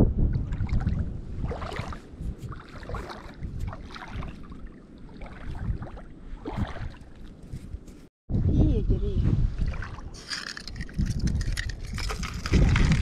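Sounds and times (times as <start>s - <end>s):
wind on microphone: 0.0s - 13.0s
feet wading through water: 0.5s - 7.8s, 9.6s - 10.2s.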